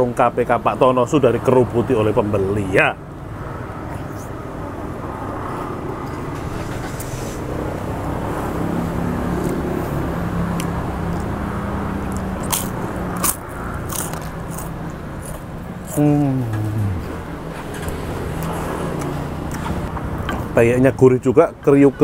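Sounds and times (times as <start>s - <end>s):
crunchy chewing: 12.0s - 16.0s.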